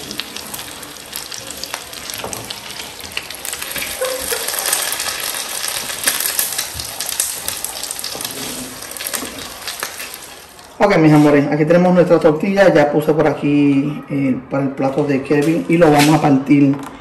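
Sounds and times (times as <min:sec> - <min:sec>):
omelette sizzling in a pan: 0:00.0 - 0:10.8.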